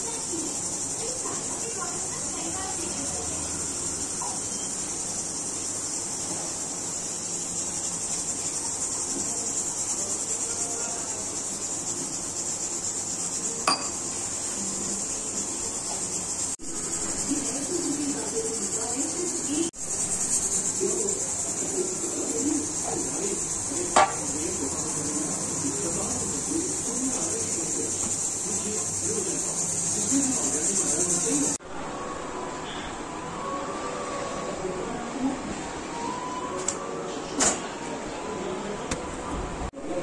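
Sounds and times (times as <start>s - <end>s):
insects chirring: 0.0s - 31.6s.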